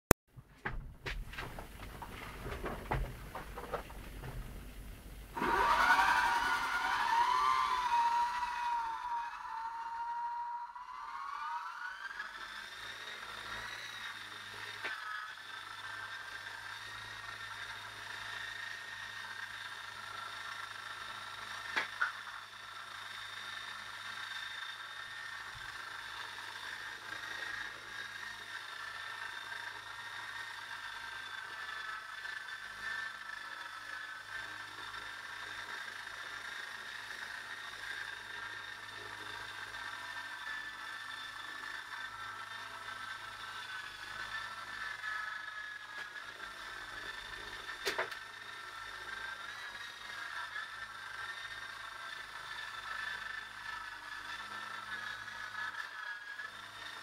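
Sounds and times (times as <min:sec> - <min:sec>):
rc helicopter motor whine: 0:01.6 - 0:57.0.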